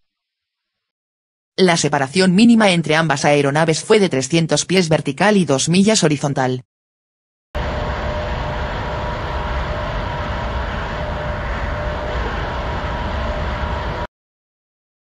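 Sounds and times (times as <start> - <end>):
faint steady hum: 7.6 - 14.1
jet engines rumbling in flight: 7.6 - 14.1.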